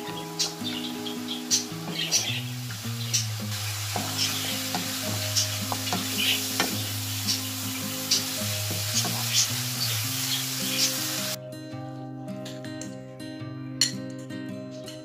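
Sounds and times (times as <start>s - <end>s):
background music: 0.0s - 15.0s
meat sizzling: 0.4s - 11.4s
spoon scraping and tapping pan: 4.0s - 6.9s.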